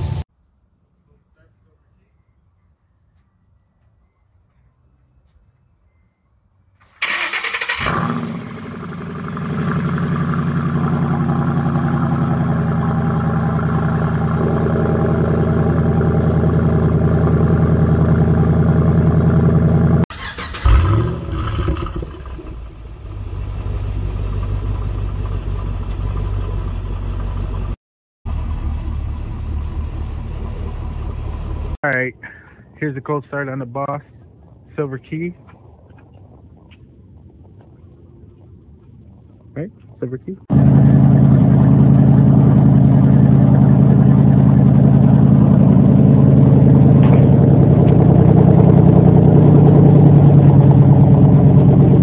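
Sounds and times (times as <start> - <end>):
car engine idling slowly: 8.4 - 20.0, 22.0 - 32.8, 35.4 - 52.0.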